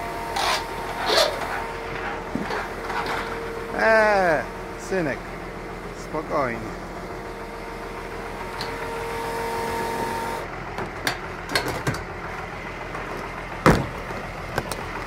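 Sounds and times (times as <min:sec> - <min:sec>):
electric pump humming: 0:00.0 - 0:10.6
tractor engine idling: 0:00.0 - 0:15.0.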